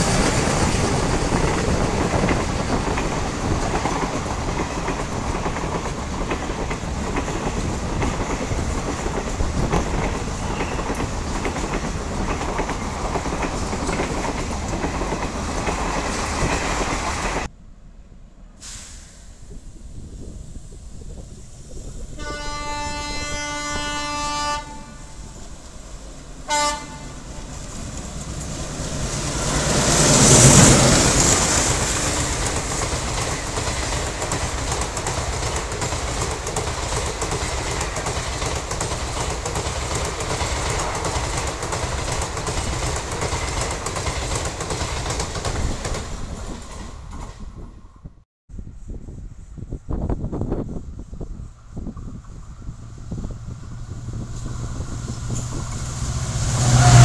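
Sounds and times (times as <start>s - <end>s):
wheels clacking over rail joints: 0.0s - 17.5s, 25.4s - 47.5s
diesel train passing: 0.0s - 57.0s
train horn: 22.2s - 25.4s, 26.4s - 27.6s, 56.2s - 57.0s.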